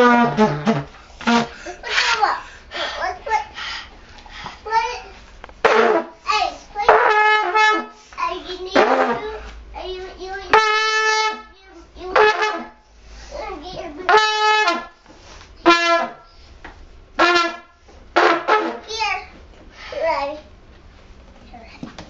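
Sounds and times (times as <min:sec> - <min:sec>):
toy horn honking: 0:00.0 - 0:01.6, 0:05.6 - 0:06.1, 0:06.9 - 0:08.0, 0:10.5 - 0:11.5, 0:12.1 - 0:12.8, 0:14.1 - 0:14.9, 0:15.6 - 0:16.2, 0:17.2 - 0:18.8.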